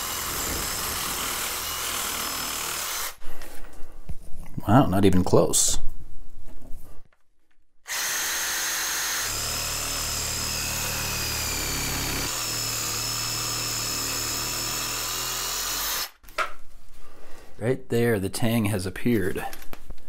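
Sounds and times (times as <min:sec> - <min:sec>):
reciprocating saw cutting plastic: 0:00.0 - 0:03.2, 0:07.9 - 0:16.2.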